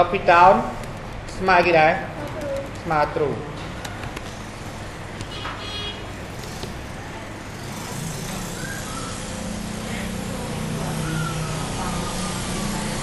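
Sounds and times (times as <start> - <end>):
road traffic hiss and rumble: 0.0 - 13.0.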